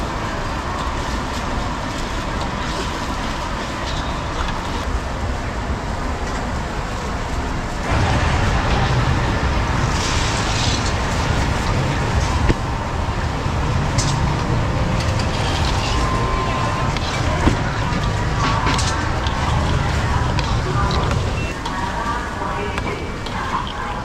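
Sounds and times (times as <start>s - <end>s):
gas burner roaring: 7.8s - 21.5s
syrup bubbling and sizzling: 7.8s - 21.5s.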